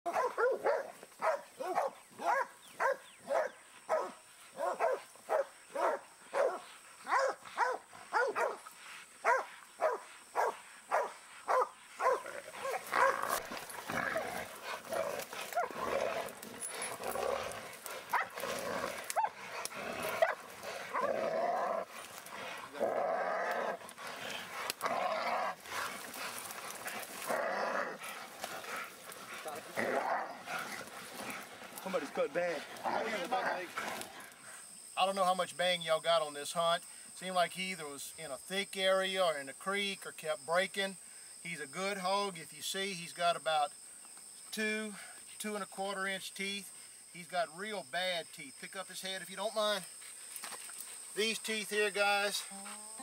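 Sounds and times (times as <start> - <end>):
jumbled dog sounds: 0.0 - 34.7, 48.7 - 53.0
dog barking: 0.1 - 8.6, 9.2 - 13.2, 18.1 - 18.3, 20.2 - 21.1.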